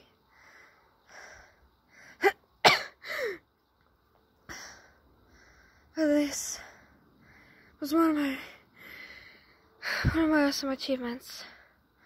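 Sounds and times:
girl breathing heavily: 0:00.2 - 0:02.4, 0:03.0 - 0:03.5, 0:04.4 - 0:10.4.

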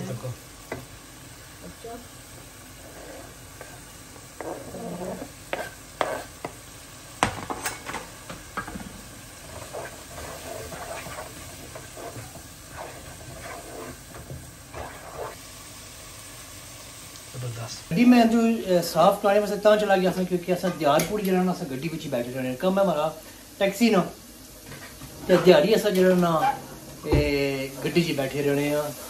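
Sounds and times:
curry sizzling: 0:00.0 - 0:29.0
wooden spoon scraping a pot: 0:02.7 - 0:06.6, 0:09.4 - 0:15.4.

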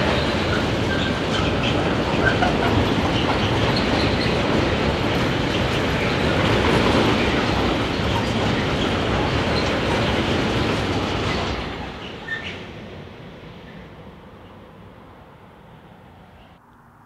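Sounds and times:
freight train wheels clattering: 0:00.0 - 0:12.6.

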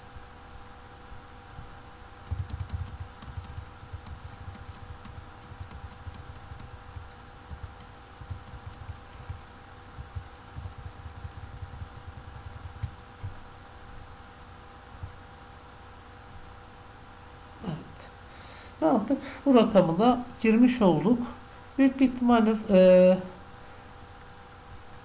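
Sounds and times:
electrical hum: 0:00.0 - 0:25.0
keyboard keystrokes: 0:02.2 - 0:13.4.

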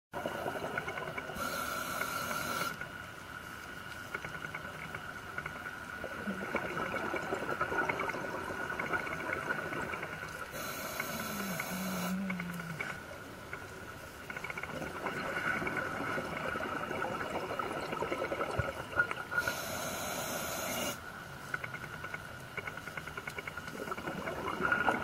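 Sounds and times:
steady underwater whine: 0:00.2 - 0:25.0
faint crackling clicks: 0:00.5 - 0:25.0
scuba regulator hissing: 0:10.6 - 0:12.3, 0:19.4 - 0:21.0.

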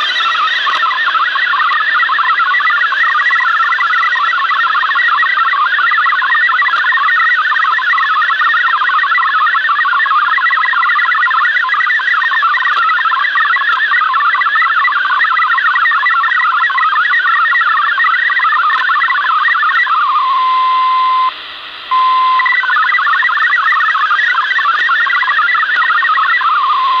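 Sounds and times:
radio band noise hiss: 0:00.0 - 0:27.0
warble of hopping data tones: 0:00.0 - 0:27.0
single steady tone: 0:20.2 - 0:22.6.

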